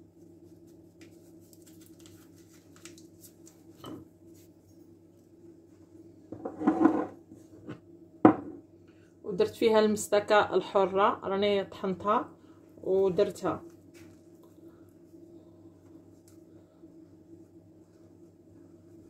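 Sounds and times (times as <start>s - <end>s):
faint steady hum: 0.0s - 19.0s
paper sachet crinkling: 1.1s - 3.7s
bowl clattering on wooden worktop: 6.4s - 7.2s, 8.3s - 8.6s.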